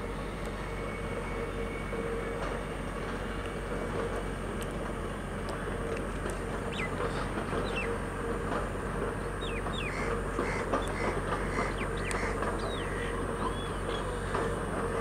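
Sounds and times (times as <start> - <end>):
falling bird calls: 6.6 - 8.0, 9.3 - 15.0.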